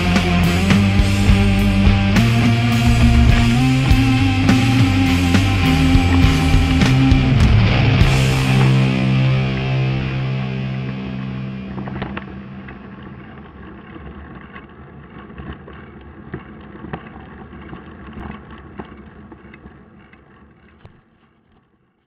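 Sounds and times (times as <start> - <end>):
rock music: 0.0 - 13.5.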